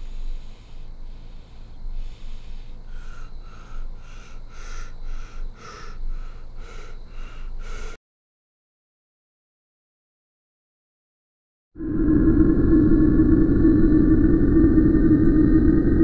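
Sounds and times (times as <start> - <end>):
low steady rumble: 0.0 - 7.7, 11.8 - 16.0
quick heavy breathing: 0.0 - 8.0.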